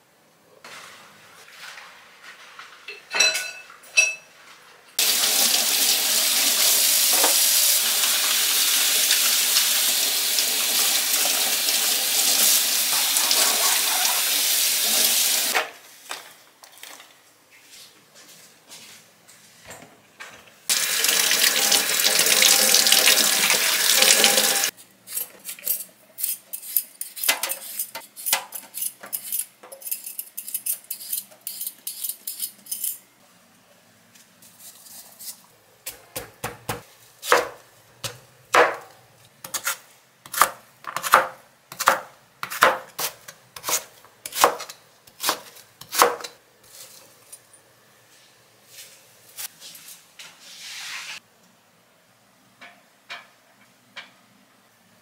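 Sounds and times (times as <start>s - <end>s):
water running from kitchen tap: 5.0s - 15.6s, 20.7s - 24.7s
knife cutting on a cutting board: 39.5s - 47.0s.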